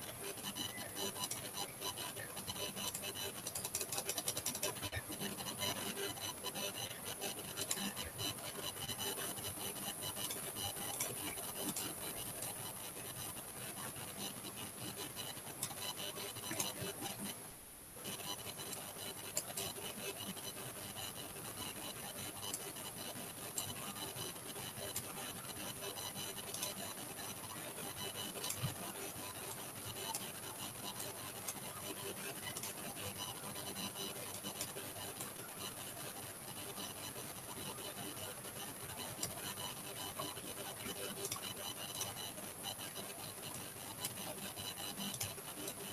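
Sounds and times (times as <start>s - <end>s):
stylus scratching on tablet: 0.0s - 17.4s, 18.0s - 45.9s.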